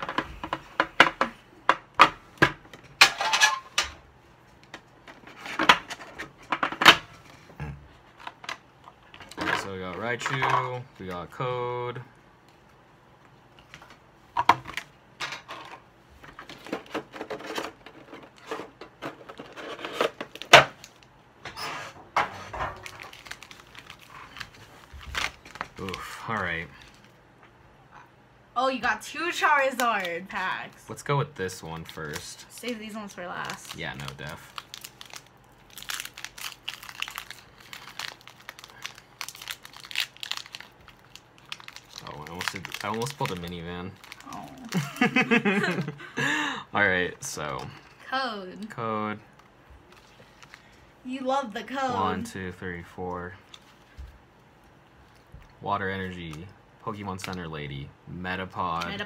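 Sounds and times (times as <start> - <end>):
foil wrapper crinkling: 22.7 - 27.1, 31.6 - 45.9, 49.8 - 50.8.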